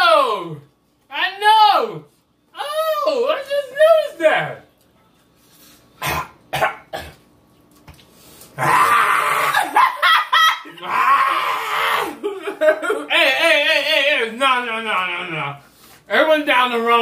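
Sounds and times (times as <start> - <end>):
person coughing: 6.0 - 7.2
people shrieking and hollering: 8.6 - 12.2.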